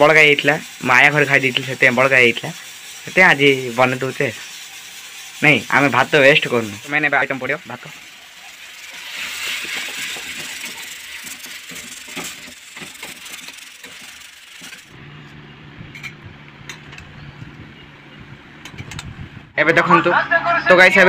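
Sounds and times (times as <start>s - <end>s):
rice sizzling in a wok: 0.0s - 15.0s
spatula scraping a pan: 0.1s - 15.0s
low hum: 15.0s - 21.0s.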